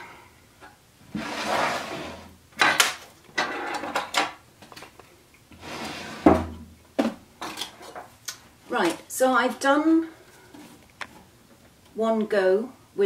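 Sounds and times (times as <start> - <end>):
wood scraping on wood: 1.1 - 2.3, 5.5 - 6.5.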